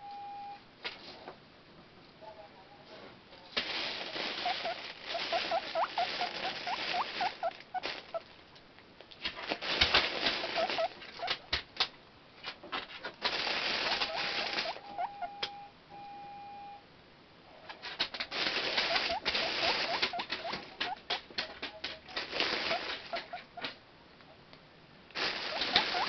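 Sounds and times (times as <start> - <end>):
guinea pigs squeaking: 3.5 - 8.3, 9.5 - 11.6, 13.2 - 15.7, 17.6 - 23.8, 25.2 - 26.0
food bag rustling: 3.5 - 8.4, 9.3 - 11.2, 13.2 - 14.8, 18.2 - 20.8, 22.1 - 23.4, 25.2 - 26.0
electronic scanner beeps: 14.8 - 16.8.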